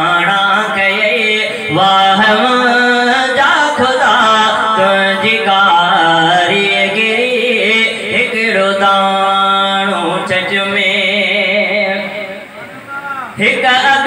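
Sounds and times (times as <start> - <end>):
man chanting through microphone: 0.0 - 14.0.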